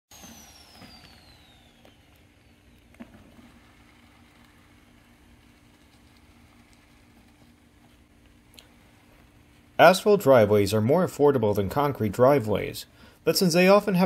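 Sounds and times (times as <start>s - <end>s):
high tone falling in pitch: 0.1s - 3.0s
faint mechanical hum: 0.1s - 14.0s.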